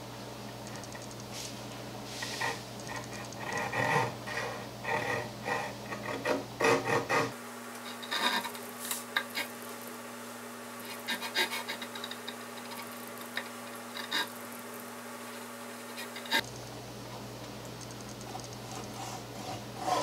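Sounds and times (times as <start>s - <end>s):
hand saw cutting wood: 2.2s - 8.6s, 10.8s - 14.4s, 15.8s - 16.4s, 18.7s - 20.0s.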